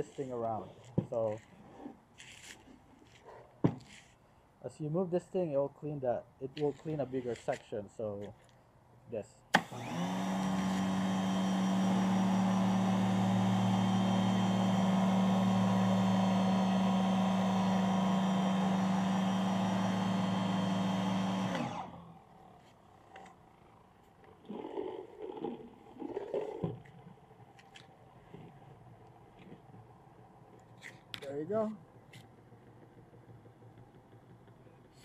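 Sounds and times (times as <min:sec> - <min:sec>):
pressure washer motor hum: 0:09.6 - 0:22.2.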